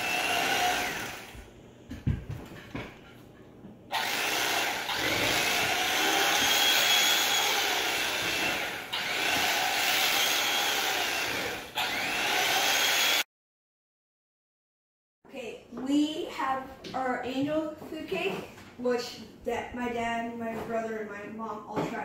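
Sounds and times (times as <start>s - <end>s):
electric knife buzzing: 0.0s - 1.4s, 3.9s - 13.3s.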